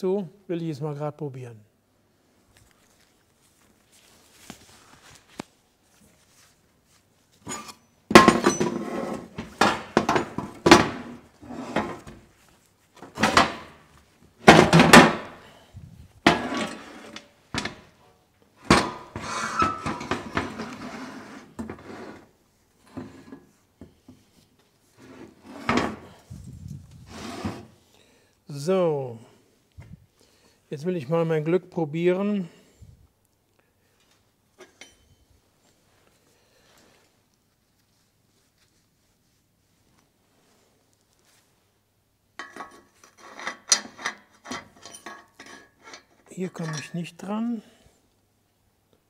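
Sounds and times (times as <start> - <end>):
metal clanks and knocks: 7.5 - 12.2, 18.6 - 20.6, 42.4 - 47.0
metal scraping: 16.2 - 17.3.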